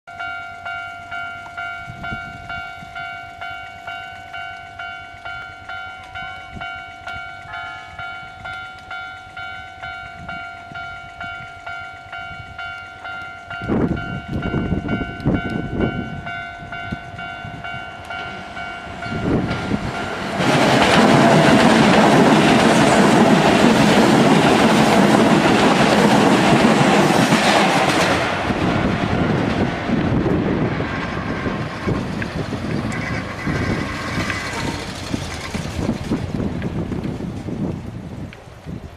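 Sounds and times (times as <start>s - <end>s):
level crossing warning bell: 0.1s - 21.7s
train wheels passing: 0.1s - 38.9s.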